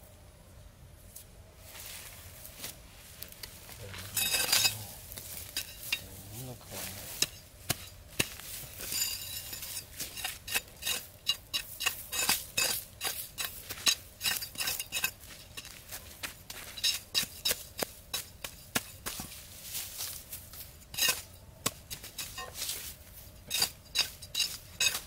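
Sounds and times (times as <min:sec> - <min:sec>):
machete chopping sandy ground: 0:06.8 - 0:25.0.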